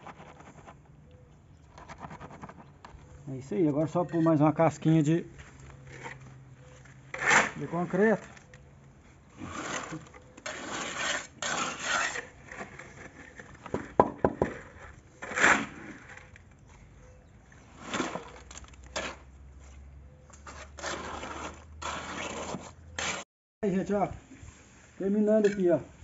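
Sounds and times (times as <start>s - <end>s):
trowel scraping wet concrete: 3.6s - 5.0s, 5.8s - 8.4s, 9.2s - 16.4s, 17.6s - 23.2s, 25.3s - 25.8s.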